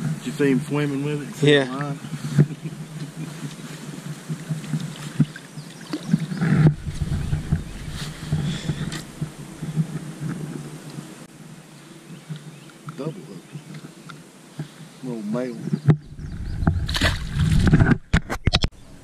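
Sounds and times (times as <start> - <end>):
low hum: 6.3 - 11.9
fish splashing in water: 16.8 - 17.7.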